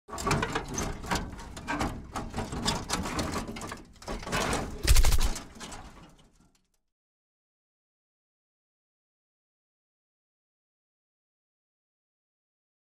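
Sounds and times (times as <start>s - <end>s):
glitchy crackles and stutters: 4.8s - 5.4s.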